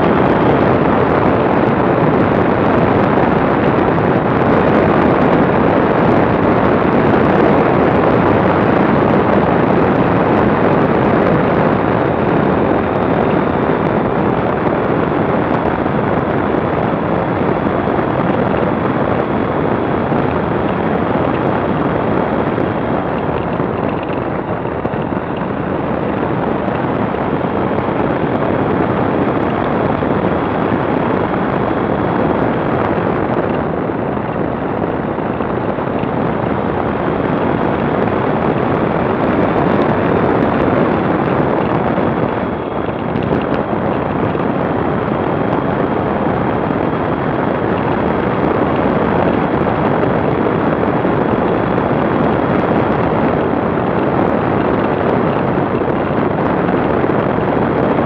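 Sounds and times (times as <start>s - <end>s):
motorcycle engine running: 0.0s - 57.2s
wind rushing on microphone: 0.0s - 58.0s.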